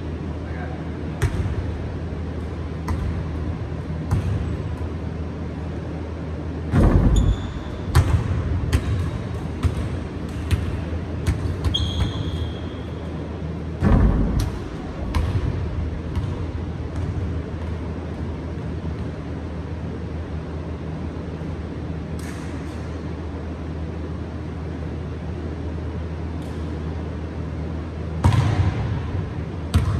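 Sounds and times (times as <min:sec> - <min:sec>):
steady low hum: 0:00.0 - 0:29.9
sneaker squeaks: 0:07.0 - 0:08.0, 0:11.5 - 0:13.1
basketball bouncing on wooden floor: 0:13.8 - 0:17.8.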